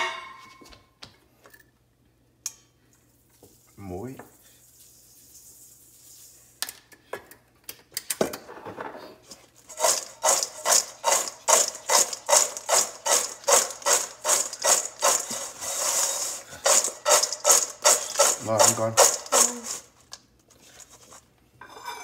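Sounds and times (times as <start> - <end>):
seasoning sprinkling: 3.1 - 6.6, 9.5 - 21.2
fries rattling in metal bowl: 9.6 - 21.2.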